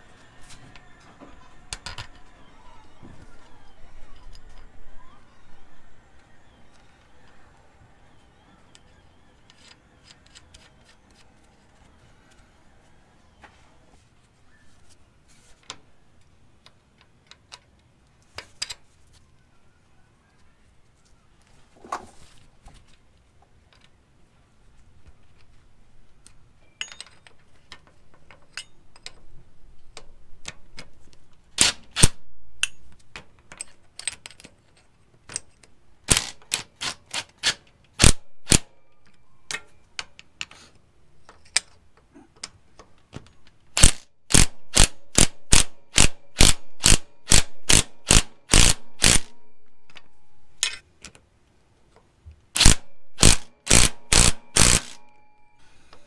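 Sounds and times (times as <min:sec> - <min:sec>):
socket ratchet clicking: 0:43.8 - 0:50.8, 0:52.6 - 0:55.0.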